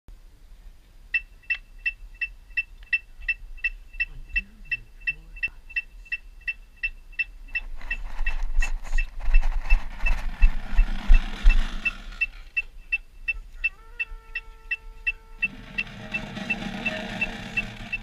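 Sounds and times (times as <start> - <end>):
faint voice: 13.4 - 15.4.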